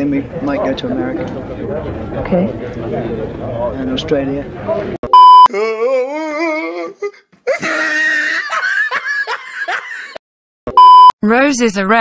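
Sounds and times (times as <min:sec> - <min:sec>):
test tone beep: 0:05.0 - 0:05.5, 0:10.7 - 0:11.1
person laughing: 0:07.5 - 0:10.2.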